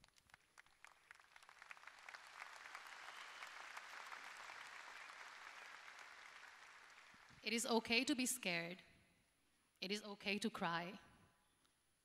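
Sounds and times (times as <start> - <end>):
faint audience applause: 0.0 - 7.5.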